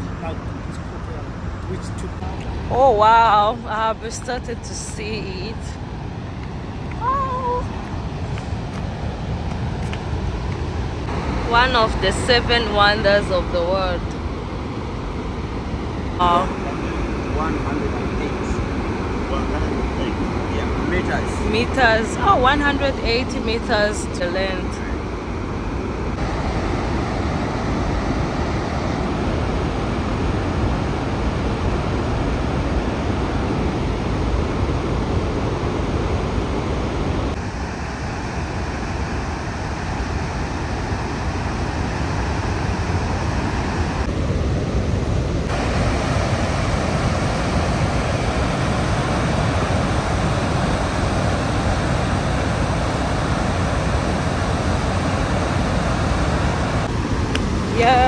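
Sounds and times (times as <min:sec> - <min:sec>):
waterfall rushing: 0:45.5 - 0:58.0.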